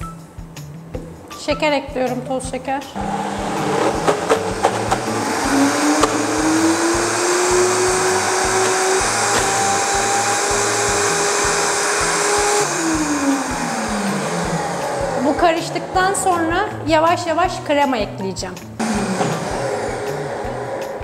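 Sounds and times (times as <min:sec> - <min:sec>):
blender motor whining: 0:03.0 - 0:16.8, 0:18.8 - 0:21.0.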